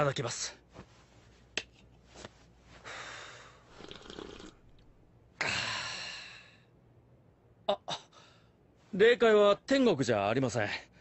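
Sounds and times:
sipping hot tea: 0:03.8 - 0:04.8.

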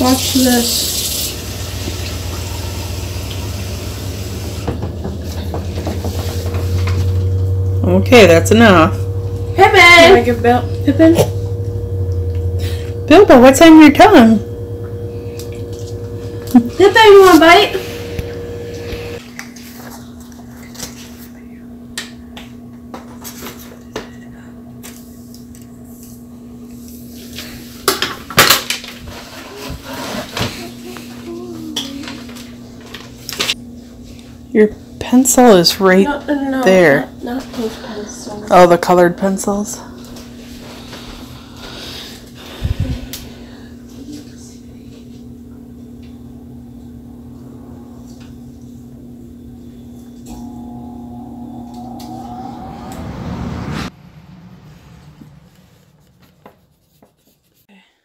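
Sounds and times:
steady low hum: 0:00.0 - 0:27.9, 0:30.7 - 0:57.7
higher steady tone: 0:05.3 - 0:19.2, 0:50.0 - 0:56.0.

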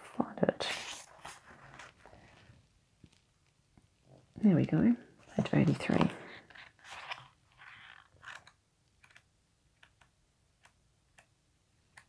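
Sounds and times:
paper pages rustling: 0:00.7 - 0:02.5, 0:05.2 - 0:08.5.

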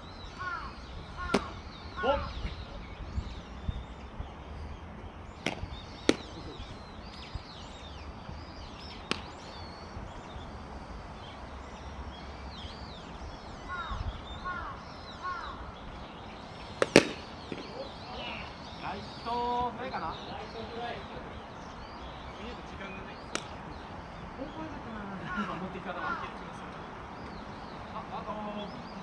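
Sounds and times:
wind rumble: 0:00.0 - 0:18.8
small birds chirping: 0:00.0 - 0:29.0
bat cracking baseball: 0:01.2 - 0:01.6, 0:05.4 - 0:06.4, 0:09.0 - 0:09.4, 0:16.8 - 0:17.7, 0:23.3 - 0:23.6
faint sharp clicks: 0:23.3 - 0:23.6.

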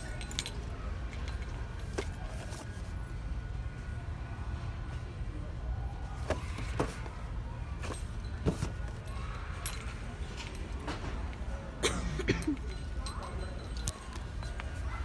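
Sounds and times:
store background hum: 0:00.0 - 0:15.0
boxes knocking and rustling: 0:06.2 - 0:09.8.

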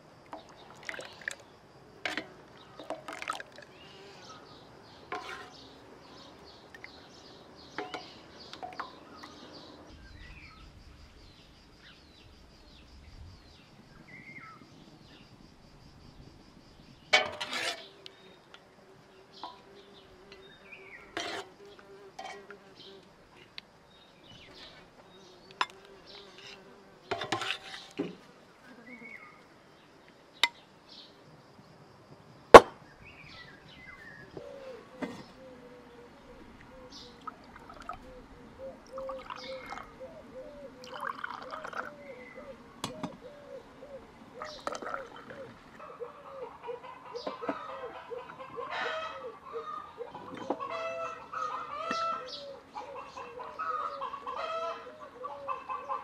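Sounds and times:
birds chirping: 0:03.7 - 0:10.7, 0:32.8 - 0:56.0
dishes and utensils clinking: 0:07.8 - 0:08.9, 0:17.2 - 0:17.8
fly buzzing: 0:24.4 - 0:27.2.

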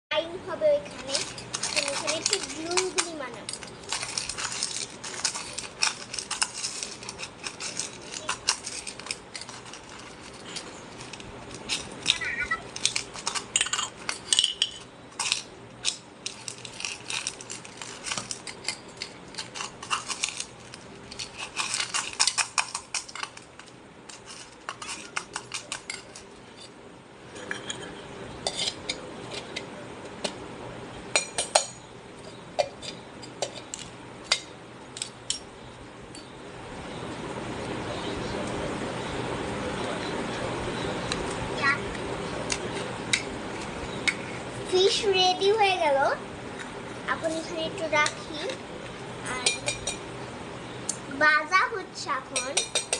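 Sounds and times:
metal spoon clinking in a pot: 0:52.4 - 0:52.9.

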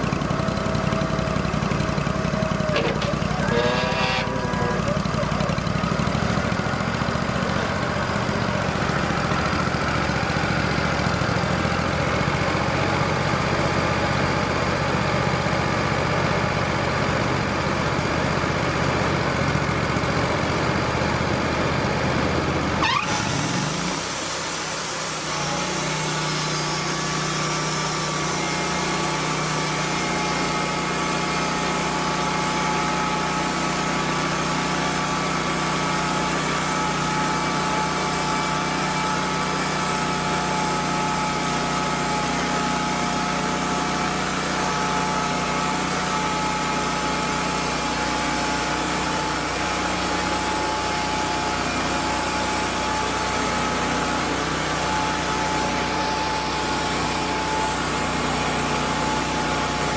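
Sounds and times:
sawmill engine running: 0:00.0 - 0:59.9
band saw blade cutting log: 0:00.4 - 0:06.3, 0:22.8 - 0:34.8, 0:35.4 - 0:59.9.

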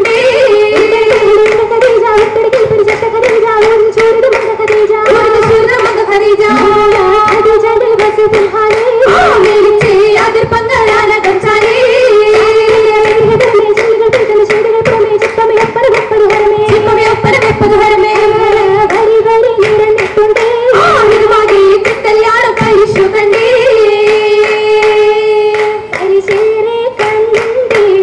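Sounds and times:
rhythmic hand clapping: 0:00.0 - 0:28.0
group singing together: 0:06.4 - 0:07.8.

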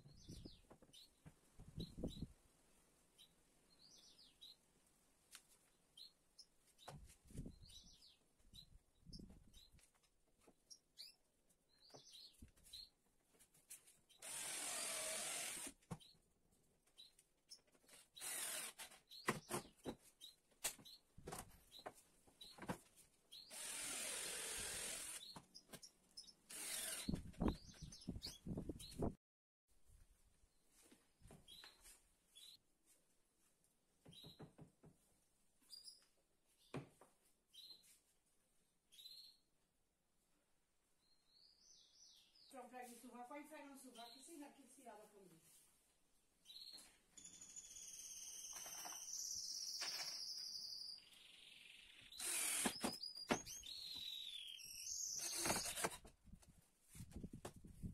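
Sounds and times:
small birds chirping: 0:00.0 - 0:02.3, 0:03.1 - 0:04.6, 0:05.6 - 0:13.0, 0:13.7 - 0:16.3, 0:16.9 - 0:22.6, 0:23.2 - 0:29.2, 0:30.5 - 0:32.6, 0:34.0 - 0:34.6, 0:35.6 - 0:38.0, 0:38.8 - 0:39.6, 0:40.9 - 0:45.3, 0:46.4 - 0:56.0
cordless drill driving screws: 0:14.2 - 0:15.8, 0:18.2 - 0:19.0, 0:23.5 - 0:25.3, 0:26.5 - 0:27.2, 0:52.1 - 0:53.0, 0:55.0 - 0:56.1
knocks of wood and tool: 0:52.6 - 0:53.5.

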